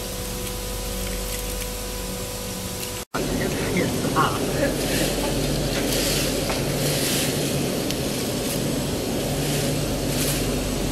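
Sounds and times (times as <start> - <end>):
fryer machinery humming and hissing: 0.0 - 10.9
dry chips rustling: 3.8 - 10.9.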